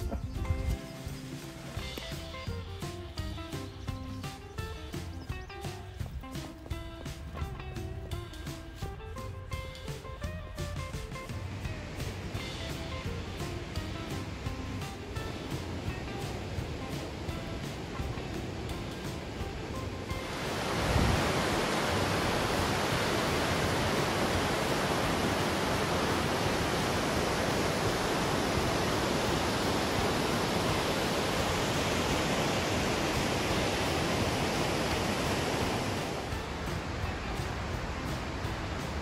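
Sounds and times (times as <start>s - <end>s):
waterfall rushing: 10.7s - 39.0s.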